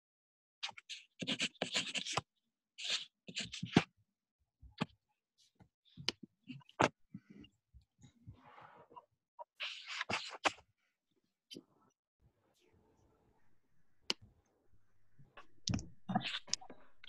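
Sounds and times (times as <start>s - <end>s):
pen scratching on paper: 0.7s - 2.2s
scattered clicks: 14.8s - 17.0s.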